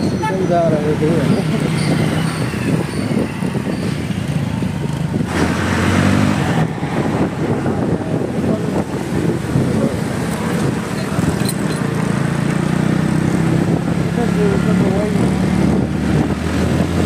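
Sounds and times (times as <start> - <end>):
wind and road noise: 0.0 - 17.0
motorcycle engine running: 7.1 - 17.0.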